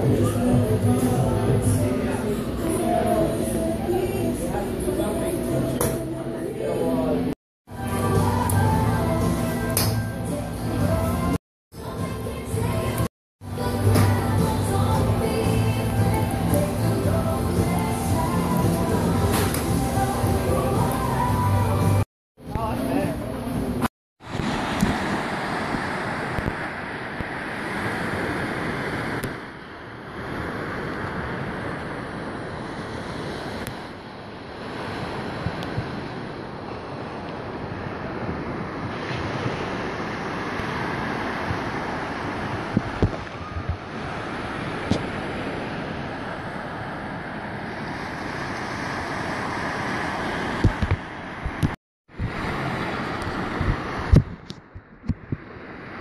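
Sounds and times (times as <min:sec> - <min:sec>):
small surf breaking on sand: 0:24.2 - 0:29.4
ocean surf washing onto beach: 0:24.2 - 0:54.4
wind buffeting microphone: 0:50.6 - 0:56.0.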